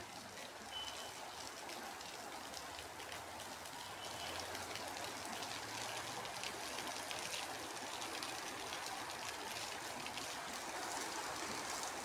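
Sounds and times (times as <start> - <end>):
raindrops ticking on wet surfaces: 0.0 - 12.0.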